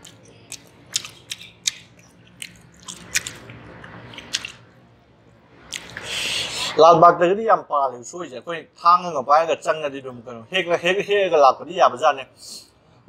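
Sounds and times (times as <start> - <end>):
person chewing with smacking: 0.0 - 4.6, 5.7 - 6.2.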